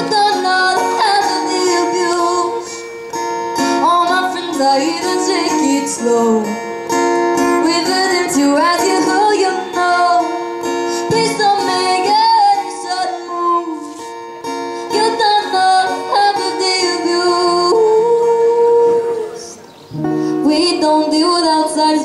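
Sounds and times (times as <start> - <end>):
woman singing: 0.0 - 2.9, 3.6 - 6.6, 7.4 - 14.1, 14.8 - 22.0
acoustic guitar: 0.0 - 22.0.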